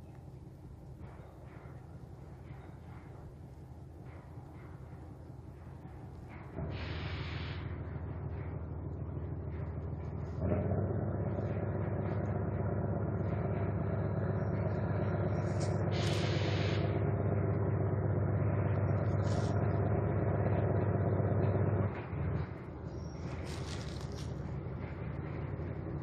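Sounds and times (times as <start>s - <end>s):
diesel locomotive engine: 0.0s - 26.0s
short hiss: 6.7s - 7.6s, 15.9s - 16.9s.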